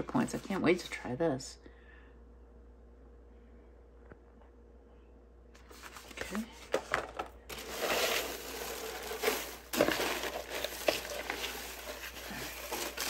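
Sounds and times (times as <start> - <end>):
paper crunch: 5.6 - 13.0
shredded paper and tissue rustling: 5.6 - 13.0.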